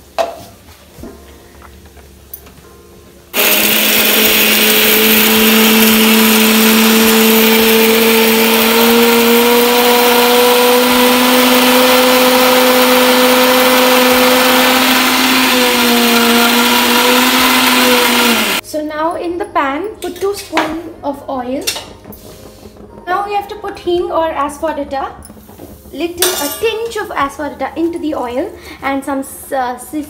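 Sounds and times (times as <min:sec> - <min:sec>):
mixer grinder motor humming: 0:03.3 - 0:18.6.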